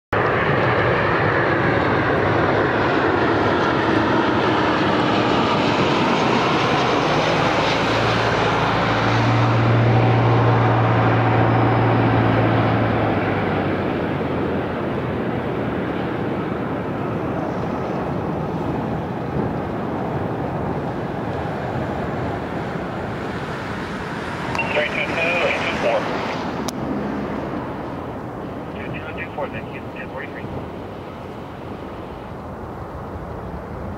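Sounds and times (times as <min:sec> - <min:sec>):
jet engines running: 0:00.2 - 0:33.9
falling whine tones: 0:24.4 - 0:30.5.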